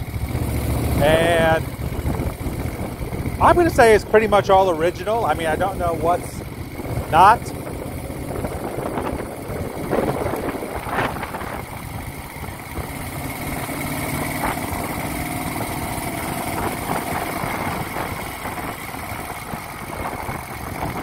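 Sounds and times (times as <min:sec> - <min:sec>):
motorcycle engine idling: 0:00.0 - 0:21.0.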